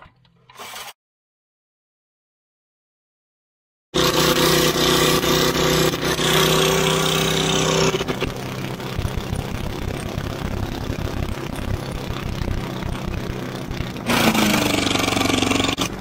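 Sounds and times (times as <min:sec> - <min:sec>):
lawnmower engine running: 0:04.0 - 0:16.0.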